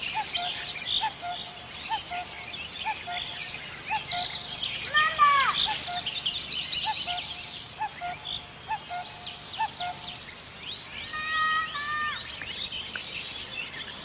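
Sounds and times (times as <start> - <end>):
birds chirping: 0.0 - 14.0
loud falling bird call: 3.9 - 6.2, 11.0 - 12.4.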